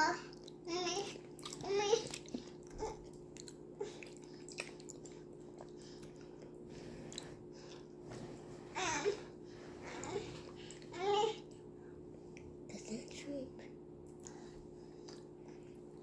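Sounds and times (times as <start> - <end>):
chewing mouth clicks and smacks: 0.3 - 0.6, 1.2 - 7.8, 15.0 - 15.3.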